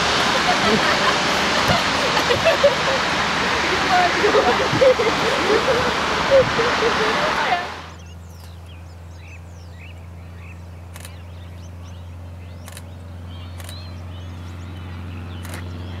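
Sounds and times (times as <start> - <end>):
birds chirping: 0.0 - 16.0
propeller plane engine drone: 0.0 - 16.0
sharp clicks: 10.9 - 11.2, 12.6 - 13.9, 15.4 - 15.7.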